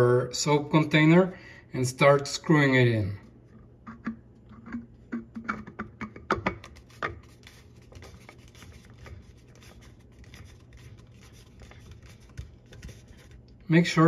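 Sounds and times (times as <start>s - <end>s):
soft plastic rubbing: 3.2s - 13.6s.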